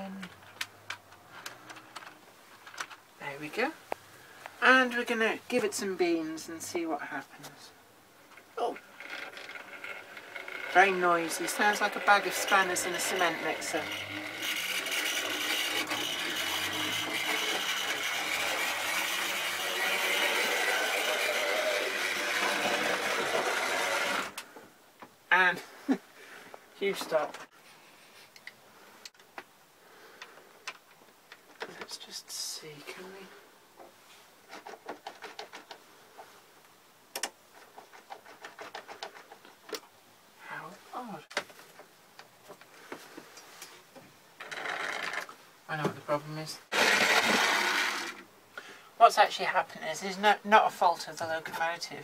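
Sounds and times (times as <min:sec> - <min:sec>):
model train motor grinding and whining: 0:08.8 - 0:24.4, 0:46.7 - 0:48.3.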